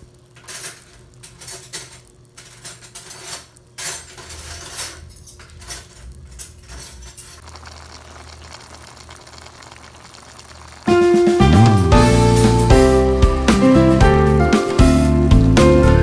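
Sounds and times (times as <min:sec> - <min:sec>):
utensil scraping a wok: 0:00.6 - 0:10.8.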